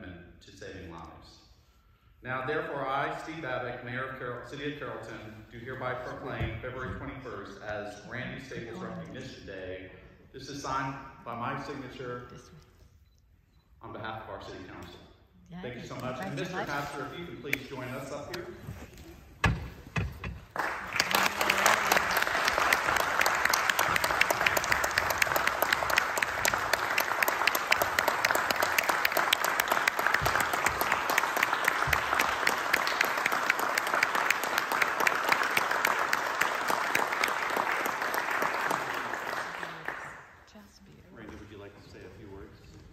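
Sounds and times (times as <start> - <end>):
crowd applauding: 20.5 - 40.3.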